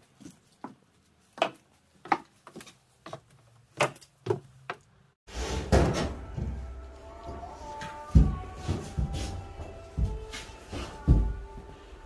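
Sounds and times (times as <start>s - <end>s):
footsteps on wooden stairs: 1.4s - 4.8s, 6.2s - 11.9s.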